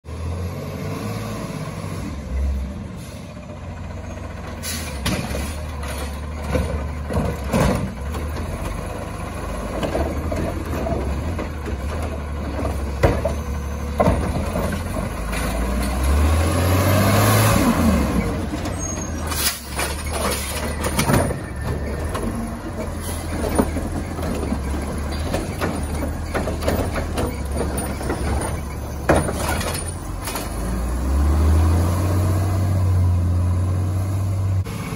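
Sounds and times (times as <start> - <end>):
garbage truck diesel engine: 0.0 - 34.9
air brake hisses: 4.6 - 5.0
clanks and knocks: 4.9 - 8.9, 9.6 - 16.1, 18.4 - 30.6.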